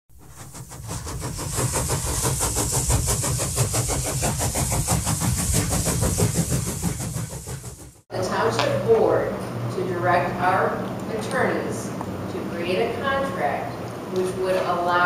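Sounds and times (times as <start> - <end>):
engine running with fast pulsing: 0.1 - 8.1.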